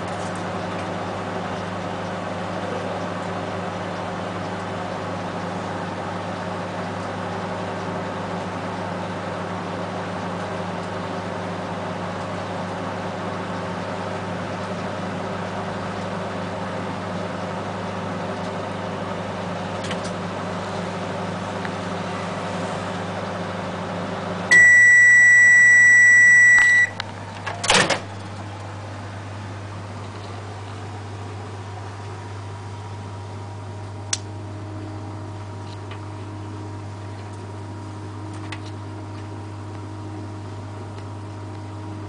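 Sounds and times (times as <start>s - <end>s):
microwave oven humming: 0.0s - 42.0s
long loud microwave beep: 24.5s - 27.0s.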